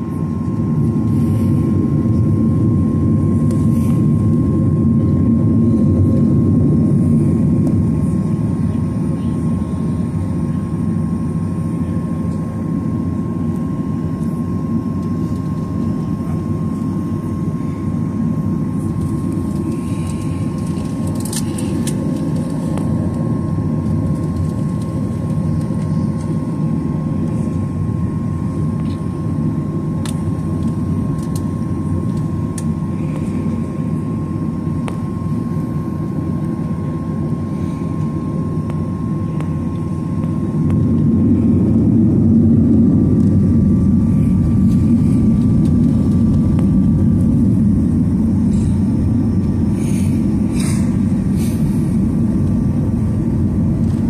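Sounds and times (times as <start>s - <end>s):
jet engine rumble in cabin: 0.0s - 54.0s.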